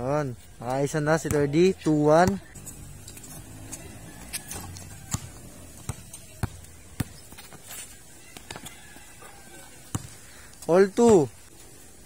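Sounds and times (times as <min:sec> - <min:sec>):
basketball bouncing on concrete: 0:01.2 - 0:07.6, 0:08.3 - 0:10.2, 0:11.0 - 0:11.3.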